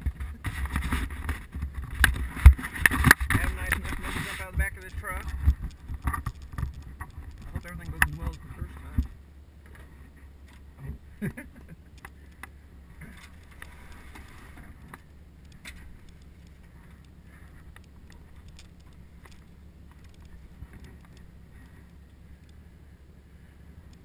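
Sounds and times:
plastic kayak knocking and scraping: 0.0 - 11.0
steady low rumble: 0.0 - 24.0.

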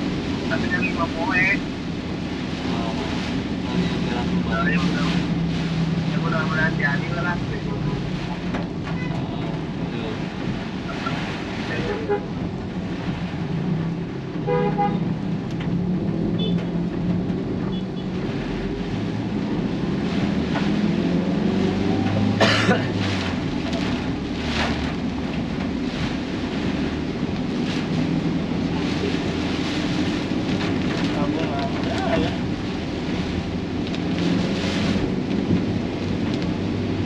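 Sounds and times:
road traffic hum: 0.0 - 37.0
vehicle horn toot: 14.5 - 15.0.

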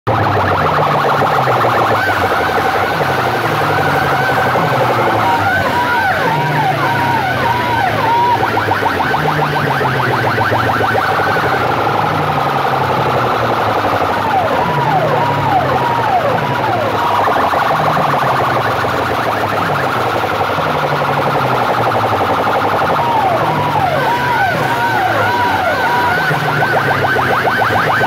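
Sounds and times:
electronic siren tones: 0.1 - 28.0.

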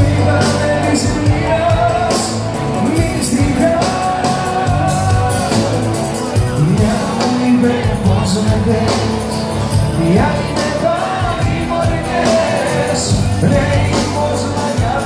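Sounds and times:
live band playing: 0.0 - 15.0
man singing: 0.0 - 15.0.

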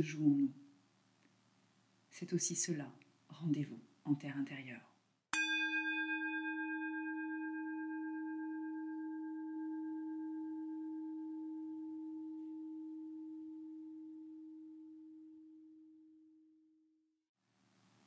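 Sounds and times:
singing bowl ringing: 5.4 - 16.5.

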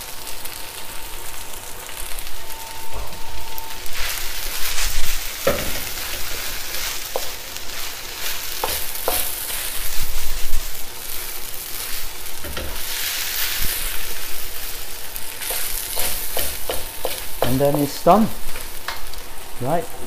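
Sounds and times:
rice sizzling in a wok: 0.0 - 20.0
spatula scraping a pan: 4.0 - 14.7, 15.4 - 17.5.

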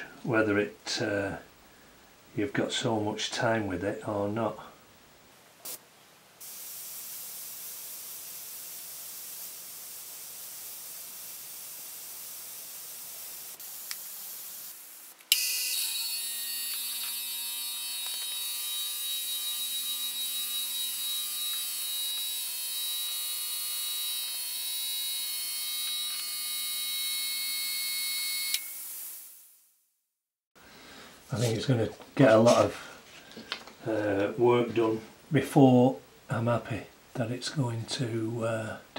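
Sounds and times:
airbrush air hissing: 5.6 - 5.8, 6.4 - 15.3, 28.4 - 29.6.

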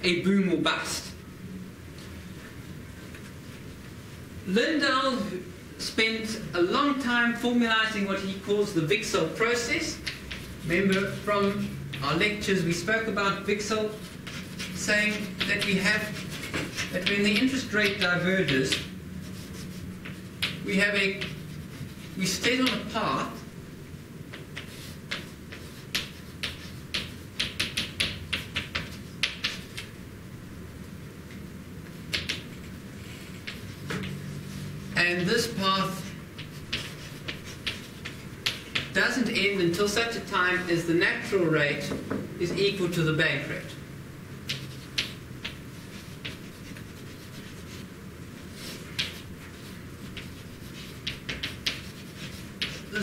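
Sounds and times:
low room hum: 0.0 - 53.0
chalk tapping on chalkboard: 9.9 - 12.5, 13.8 - 23.0, 24.3 - 29.9, 31.8 - 35.6, 36.4 - 39.0, 44.4 - 47.8, 48.5 - 53.0.

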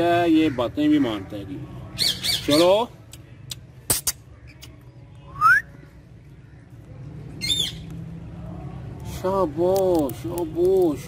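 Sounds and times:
parakeet squawk: 7.4 - 7.8.

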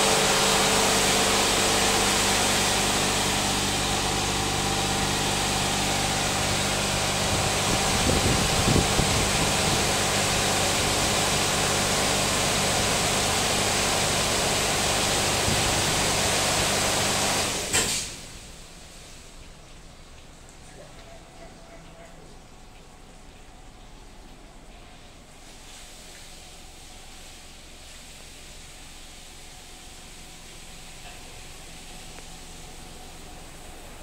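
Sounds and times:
high-pressure water spray hissing: 0.0 - 19.6
car wash machine hum: 0.0 - 34.0.

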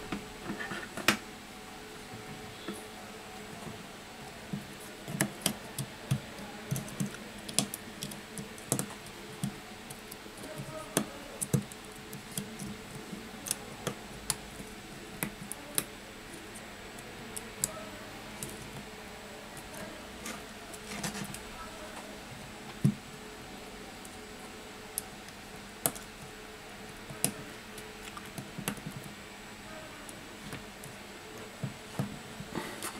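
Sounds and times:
fingers clicking and tapping phone: 4.2 - 15.9, 28.0 - 29.1.

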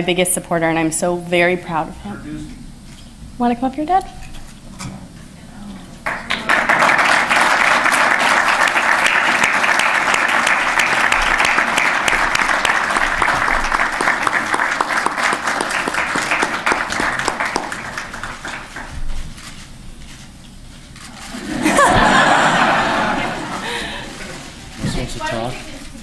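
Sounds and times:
audience applauding: 6.0 - 19.0, 21.4 - 24.5.

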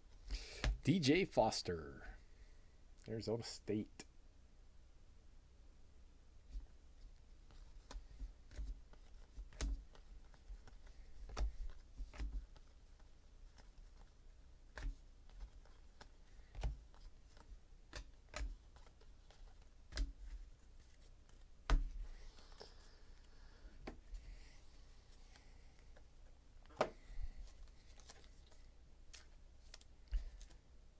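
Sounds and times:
cards clicking and tapping: 7.5 - 14.1, 14.7 - 22.8, 25.3 - 30.6.

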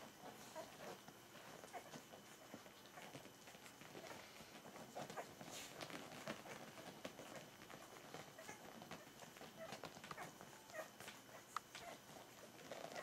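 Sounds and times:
puppies nursing and licking clicks: 0.0 - 13.0
puppies squeaking and grunting: 0.1 - 13.0.

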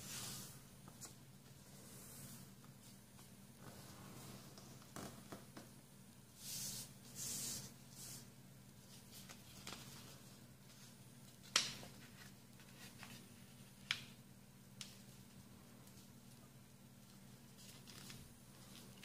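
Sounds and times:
paper rustling: 8.9 - 13.6, 17.5 - 19.0.

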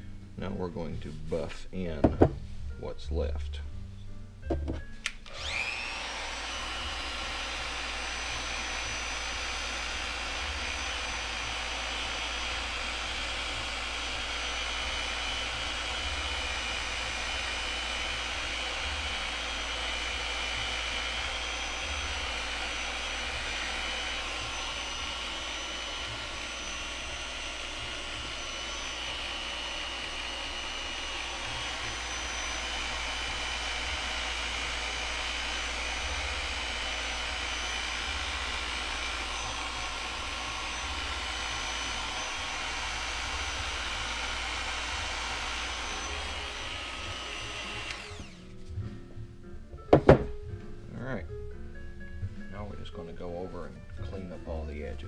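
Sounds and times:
orbital sander whining: 5.2 - 48.6.

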